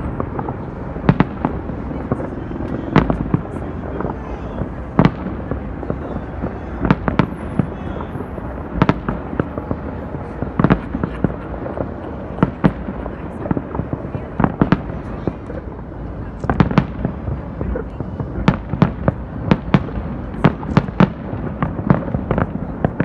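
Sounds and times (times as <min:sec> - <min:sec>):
small firework cracks: 0:00.0 - 0:23.0
steady background din: 0:00.0 - 0:23.0.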